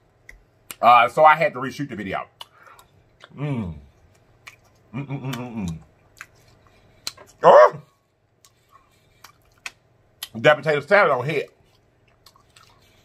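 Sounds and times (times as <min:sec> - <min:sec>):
wet lip-smacking clicks: 0:00.2 - 0:00.8, 0:02.3 - 0:03.4, 0:07.0 - 0:07.3, 0:09.2 - 0:10.4
man chewing food: 0:02.3 - 0:10.4, 0:11.4 - 0:13.0
man humming mmm: 0:03.2 - 0:03.9, 0:04.9 - 0:05.9.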